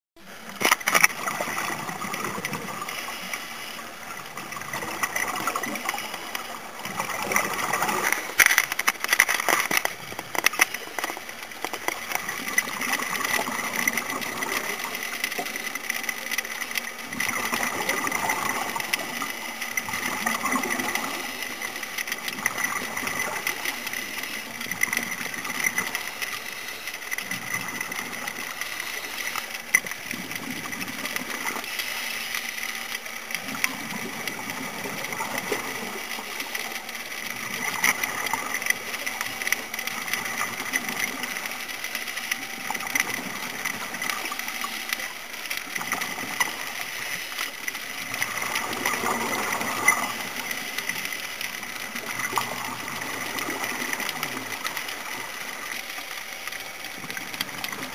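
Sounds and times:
regulator bubbling: 0:00.2 - 0:57.9
thin constant whine: 0:00.2 - 0:57.9
underwater hiss: 0:01.7 - 0:08.3, 0:30.7 - 0:33.0
sharp clicks: 0:07.9 - 0:12.2.

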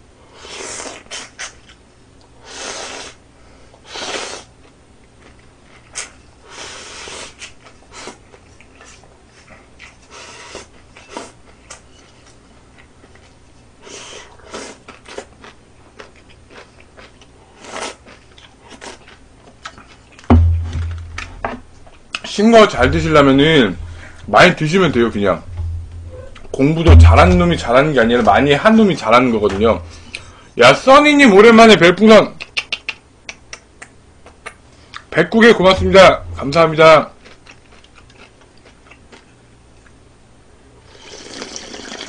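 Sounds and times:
bowl thumping on table: 0:20.3 - 0:21.6
person slurping from bowl: 0:41.0 - 0:42.0.

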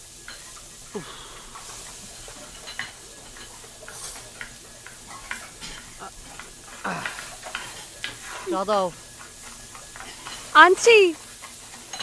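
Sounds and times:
steady hiss: 0:00.0 - 0:12.0
utensils and pots clinking: 0:00.0 - 0:12.0.

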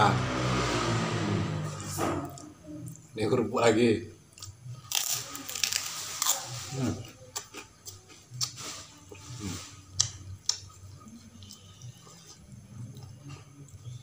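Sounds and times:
person chewing crackers: 0:04.3 - 0:14.0.

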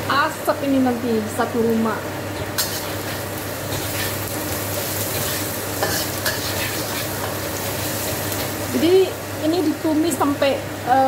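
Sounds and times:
ginger and garlic sizzling in oil: 0:00.0 - 0:11.0
metal spatula scraping wok: 0:02.6 - 0:08.5.

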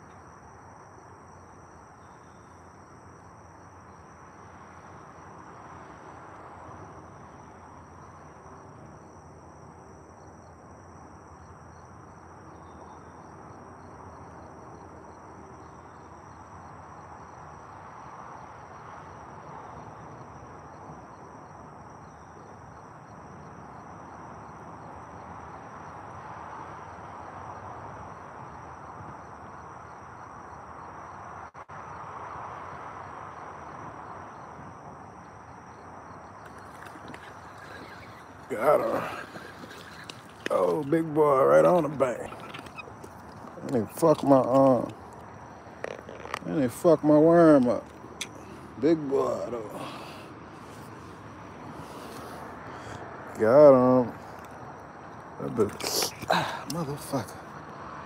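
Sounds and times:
background hiss: 0:36.2 - 0:57.4
insects shrilling: 0:36.4 - 0:53.5, 0:55.4 - 0:57.4.

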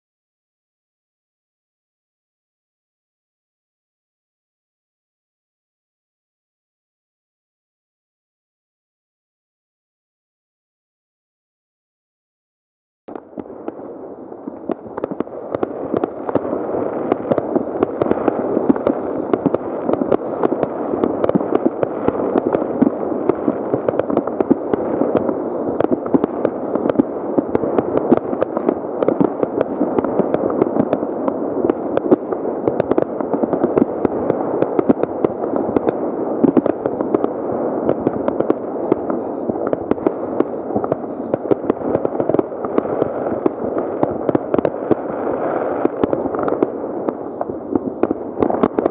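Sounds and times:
distant fireworks bangs and crackles: 0:13.1 - 0:48.9.

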